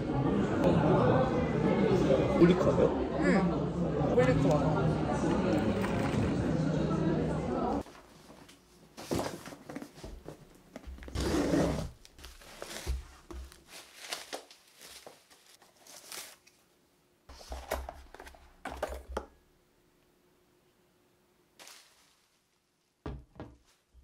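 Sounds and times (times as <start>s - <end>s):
bubble wrap rustling and crinkling: 11.8s - 16.7s, 21.6s - 23.0s.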